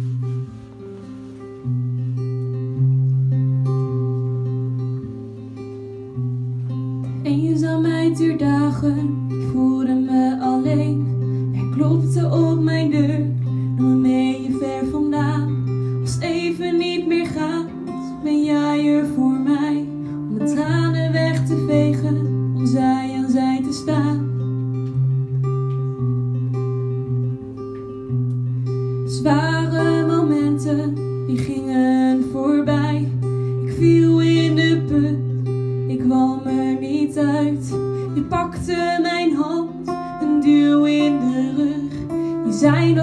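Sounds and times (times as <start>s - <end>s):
acoustic guitar strumming: 0.0s - 43.0s
woman singing: 7.0s - 24.6s, 29.0s - 43.0s.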